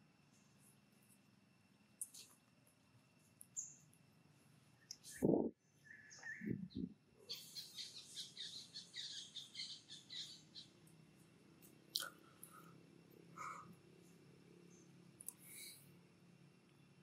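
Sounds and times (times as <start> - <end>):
bird chirping rapidly: 5.9 - 10.8.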